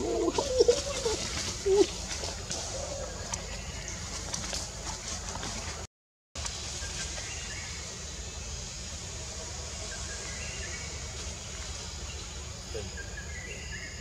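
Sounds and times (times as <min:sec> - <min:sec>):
even hiss: 0:06.4 - 0:13.9.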